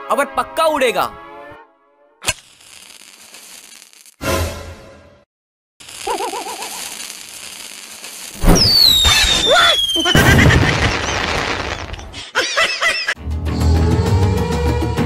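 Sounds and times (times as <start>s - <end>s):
firework burst and crackling: 2.2s - 4.2s, 5.8s - 12.2s
firework fuse hiss: 2.2s - 4.2s, 5.8s - 12.0s
rocket launch whistle: 8.3s - 11.2s.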